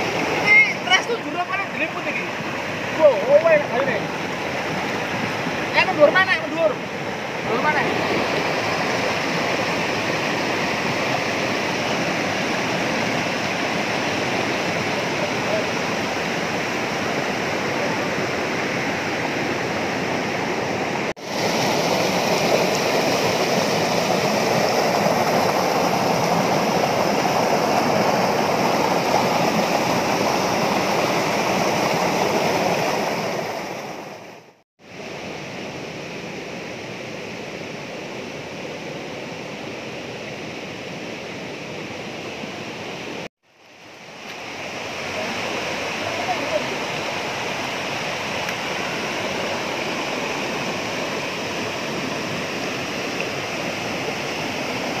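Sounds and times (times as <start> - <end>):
stream rushing over boulders: 0.0 - 55.0.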